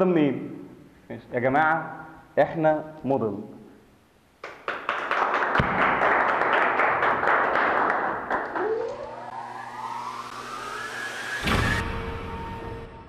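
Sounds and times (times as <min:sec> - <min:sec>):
rising whine: 0:08.3 - 0:13.0
sharp hit: 0:09.3 - 0:13.0.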